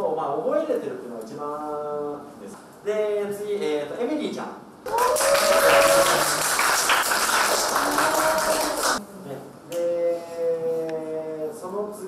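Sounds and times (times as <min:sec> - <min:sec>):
group clapping and cheering: 0:04.9 - 0:09.0.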